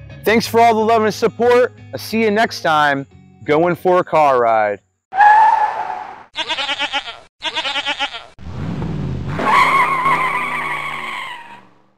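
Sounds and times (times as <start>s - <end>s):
tire squeal: 5.1s - 6.3s, 9.3s - 11.8s
goat bleating: 6.3s - 8.4s
car engine revving: 8.4s - 11.9s.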